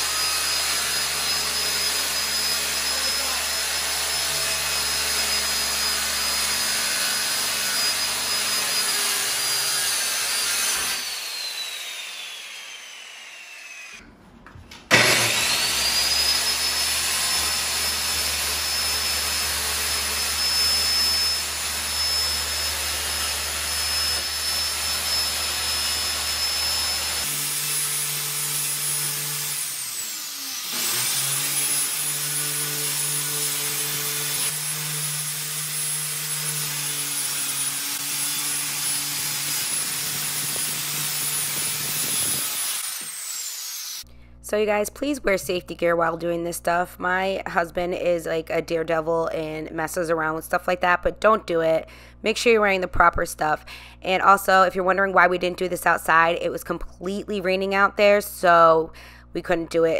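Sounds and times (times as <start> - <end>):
circular saw whining: 0.0 - 14.0, 14.9 - 44.1.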